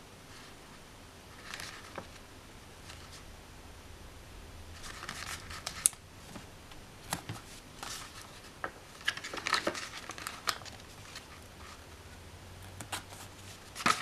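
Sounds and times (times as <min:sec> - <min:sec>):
paper sticker sheets rustling: 0:01.4 - 0:03.3, 0:04.8 - 0:12.0, 0:12.6 - 0:14.0.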